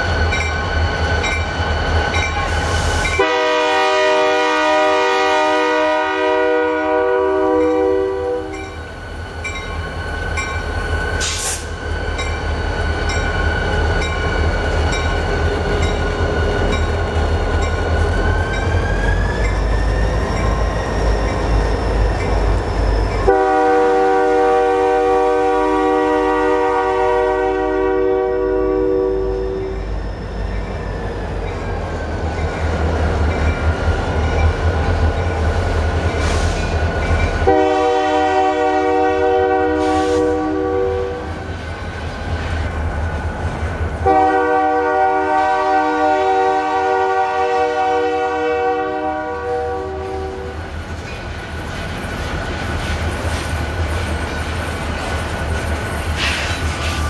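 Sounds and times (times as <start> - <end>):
freight train rumbling past: 0.0 - 57.0
locomotive air horn: 3.1 - 8.6, 23.2 - 29.8, 37.4 - 41.3, 44.0 - 50.6
high squeal: 17.8 - 23.3, 29.3 - 32.5.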